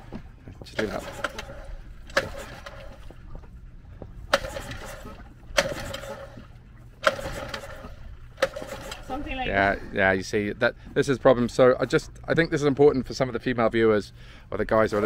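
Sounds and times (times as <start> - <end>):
engine turning over rattle: 0.6 - 3.2, 4.3 - 9.2
recoil starter pull snapping: 0.7 - 3.1, 4.3 - 6.4, 7.0 - 9.1.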